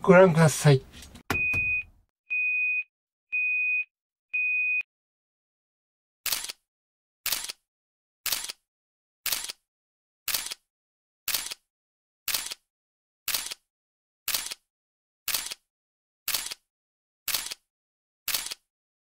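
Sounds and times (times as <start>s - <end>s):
countdown beeps: 1.3s - 2.8s
camera shutter click: 6.3s - 6.6s, 7.3s - 7.6s, 10.3s - 10.6s, 11.3s - 11.6s, 13.3s - 13.6s, 14.3s - 14.6s, 17.3s - 17.6s, 18.3s - 18.6s.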